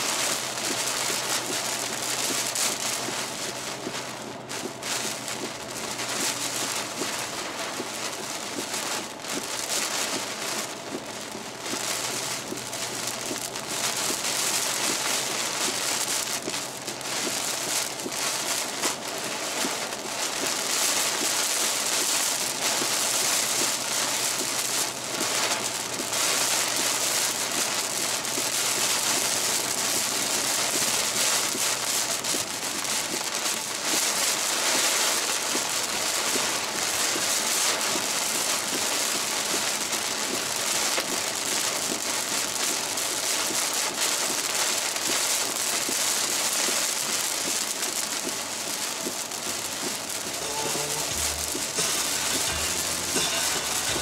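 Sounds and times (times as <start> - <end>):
heavy rain pelting a car: 0.0 - 54.0.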